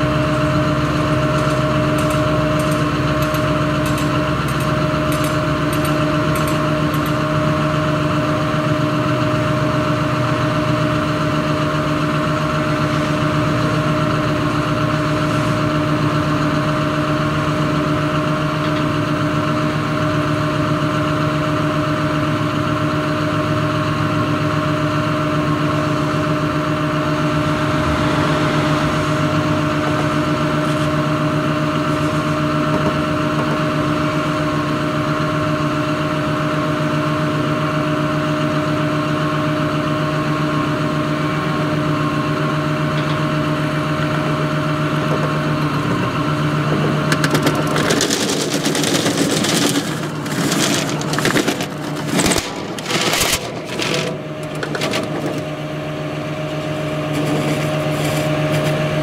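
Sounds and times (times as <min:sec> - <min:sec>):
constant hum: 0:00.0 - 0:19.3, 0:38.2 - 0:59.0
excavator diesel engine idling: 0:00.0 - 0:59.0.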